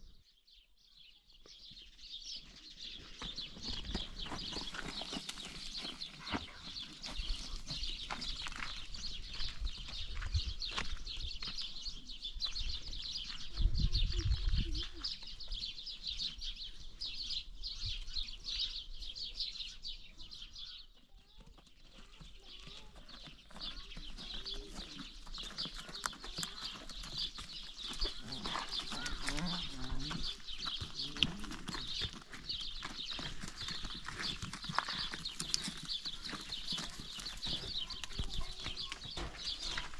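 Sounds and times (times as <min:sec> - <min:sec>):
hooves knocking on gravel: 0:02.8 - 0:11.8, 0:21.2 - 0:39.9.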